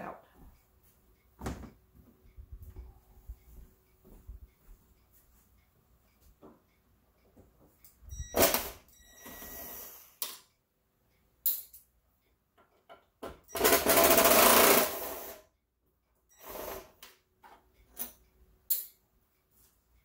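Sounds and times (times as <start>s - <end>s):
cordless drill running: 13.6s - 15.4s.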